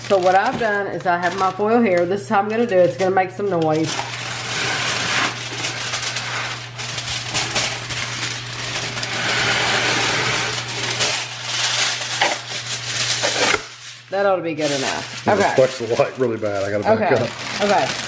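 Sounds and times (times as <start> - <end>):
aluminium foil crackling: 0.0 - 18.0.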